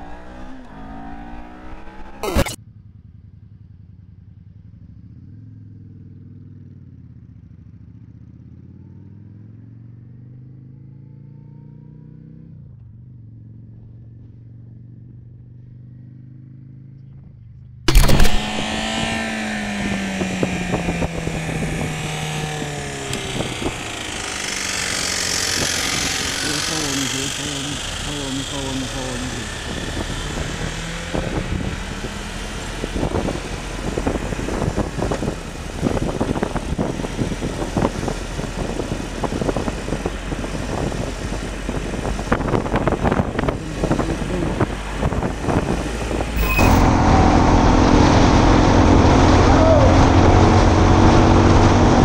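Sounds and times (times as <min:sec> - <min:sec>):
motorcycle engine at low revs: 0:00.0 - 0:52.0
sport motorcycle engine slowing: 0:18.4 - 0:45.7.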